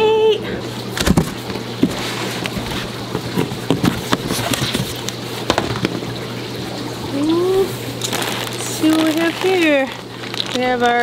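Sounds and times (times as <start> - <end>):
cardboard box being opened: 1.0 - 5.0.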